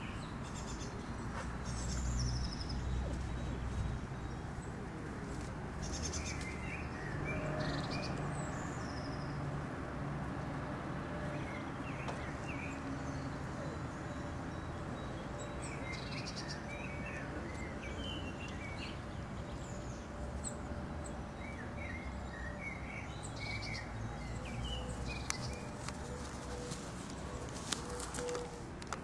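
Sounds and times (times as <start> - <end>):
steady background noise: 0.0 - 29.0.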